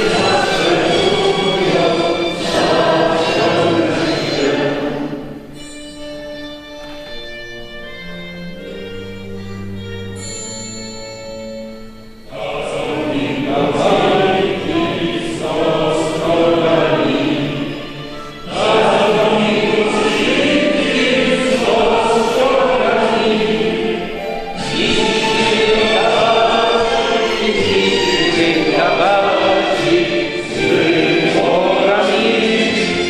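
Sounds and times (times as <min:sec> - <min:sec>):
congregation singing a hymn: 0:00.0 - 0:05.7, 0:12.3 - 0:33.0
held instrumental notes: 0:00.0 - 0:33.0.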